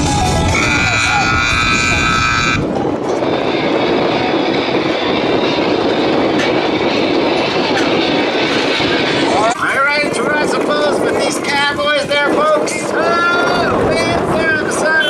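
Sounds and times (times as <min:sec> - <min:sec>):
music: 0:00.0 - 0:11.5
loud rushing noise: 0:00.0 - 0:15.0.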